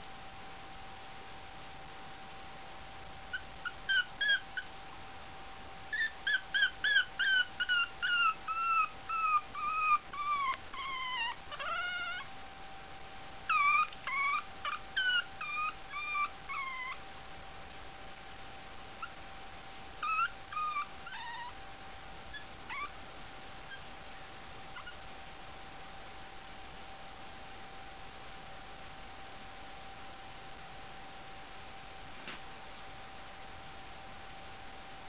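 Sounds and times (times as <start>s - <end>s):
puppy whimpering: 3.3s - 4.7s, 5.9s - 12.3s, 13.5s - 17.0s, 20.0s - 21.6s, 22.3s - 23.0s, 24.8s - 25.0s.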